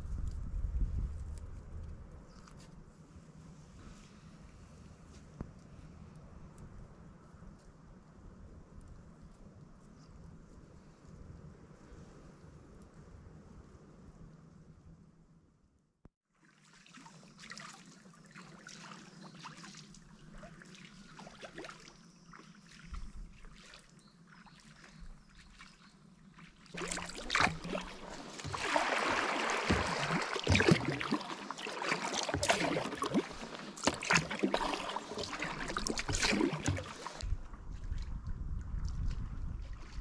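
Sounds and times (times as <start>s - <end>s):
paddle splashing through water: 16.4s - 38.2s
water dripping: 26.7s - 37.2s.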